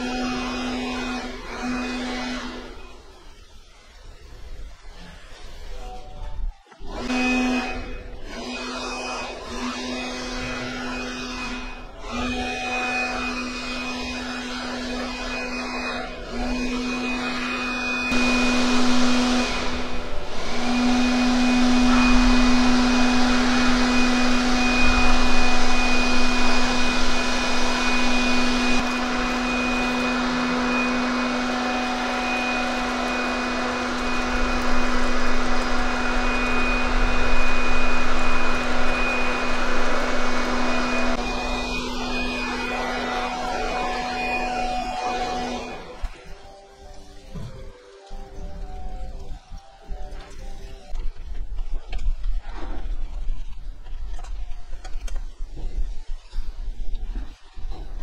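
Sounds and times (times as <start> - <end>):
air blower blowing hard: 0.0 - 3.8, 6.8 - 49.2.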